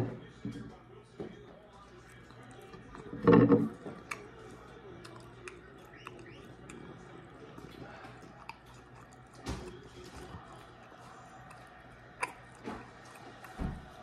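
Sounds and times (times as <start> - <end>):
person chewing food: 1.7 - 14.0
wet mouth clicks: 4.0 - 4.4, 5.0 - 13.6.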